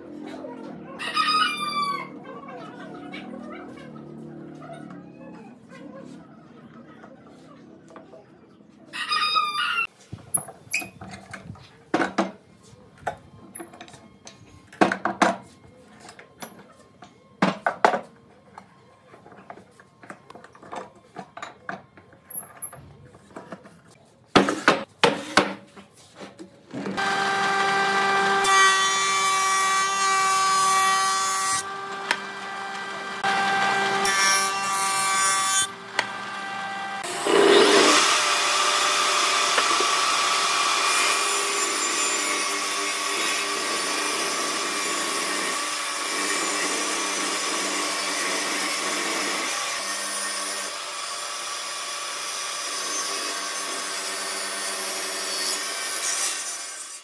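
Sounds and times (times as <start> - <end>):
power tool whining: 26.9 - 49.9.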